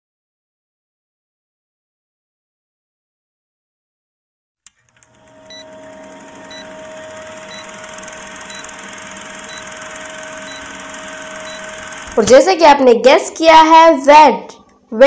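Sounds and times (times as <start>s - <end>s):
projector-like mechanical whirr: 4.7s - 12.6s
short high beeps: 5.5s - 5.8s, 6.5s - 6.8s, 7.4s - 7.8s, 8.4s - 8.8s, 9.5s - 10.7s, 11.4s - 11.9s.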